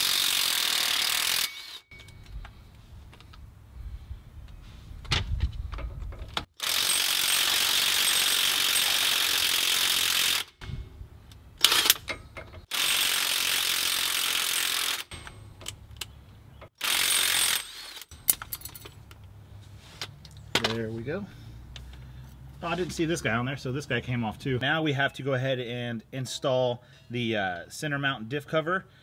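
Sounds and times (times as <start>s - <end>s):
impact wrench bursts: 0.0s - 2.1s, 6.6s - 10.8s, 11.6s - 15.8s, 16.7s - 18.8s.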